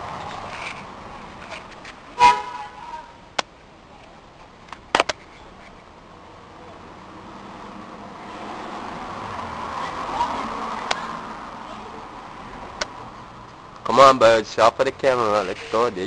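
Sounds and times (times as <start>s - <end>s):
outdoor background hiss: 0.0s - 16.0s
horn toot: 2.2s - 3.1s.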